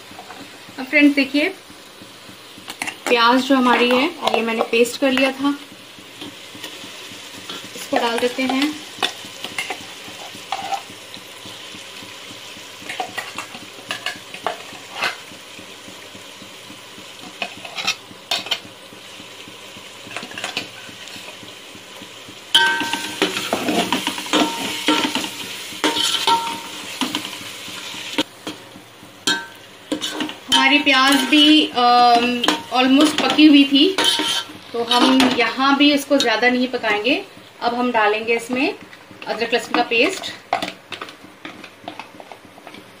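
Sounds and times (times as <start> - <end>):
paste sizzling in oil: 0.0 - 43.0
metal spoon scraping a pot: 9.6 - 10.9, 22.6 - 27.3, 29.3 - 33.4, 34.0 - 35.2.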